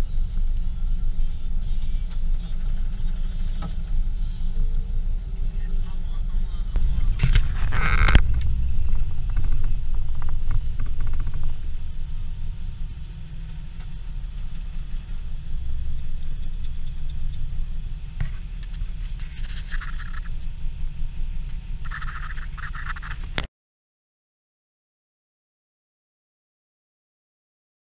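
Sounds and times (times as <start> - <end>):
car engine idling: 0.0 - 23.4.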